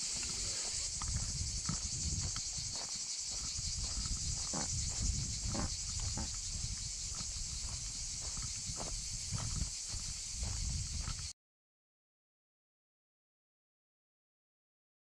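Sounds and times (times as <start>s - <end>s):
cicadas chorus: 0.0s - 11.3s
footsteps on gravel path: 0.0s - 11.3s.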